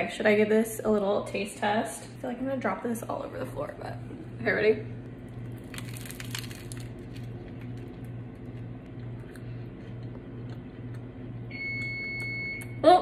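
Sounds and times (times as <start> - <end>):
steady low hum: 0.0 - 13.0
crunching bite into toast: 5.4 - 11.0
chewing: 5.4 - 11.2.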